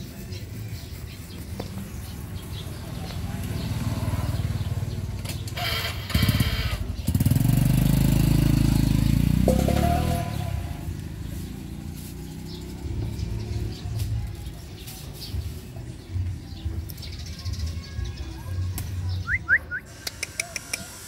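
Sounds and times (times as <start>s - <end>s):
engine running: 3.3s - 14.3s.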